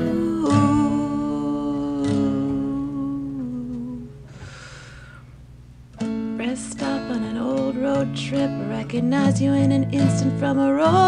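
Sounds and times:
person humming: 0:00.0 - 0:05.0
acoustic guitar strumming: 0:00.0 - 0:05.2, 0:05.9 - 0:11.0
soft hiss: 0:00.0 - 0:11.0.

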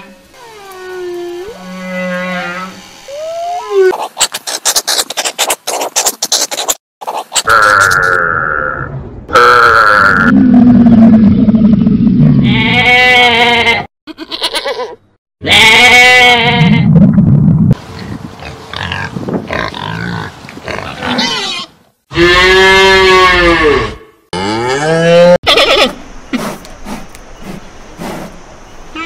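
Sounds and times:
animal snuffling and grunting: 0:03.9 - 0:07.4, 0:26.3 - 0:28.4.

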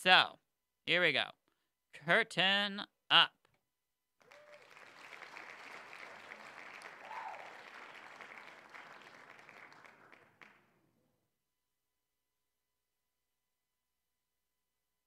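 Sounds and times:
recorded audience applause: 0:04.2 - 0:10.8.

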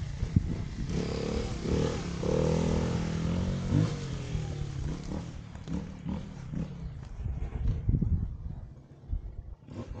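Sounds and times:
dirt bike engine revving: 0:00.0 - 0:07.0, 0:09.6 - 0:10.0.

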